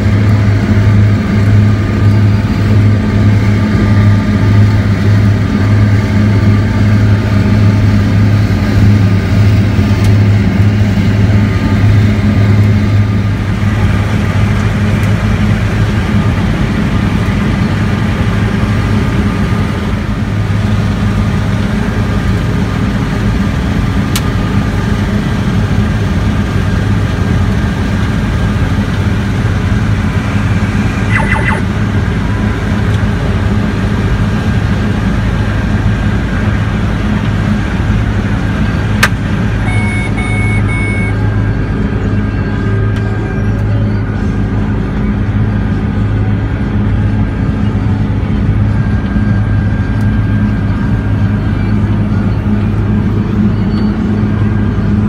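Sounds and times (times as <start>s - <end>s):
combine harvester engine drone: 0.0s - 55.0s
short beeps: 31.0s - 31.6s, 39.6s - 41.2s.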